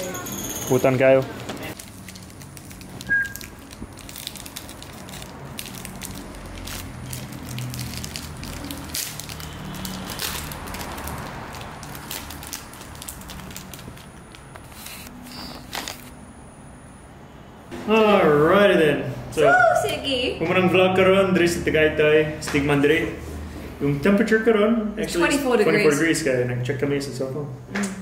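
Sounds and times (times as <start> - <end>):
foil wrapper crinkling: 1.7 - 16.2.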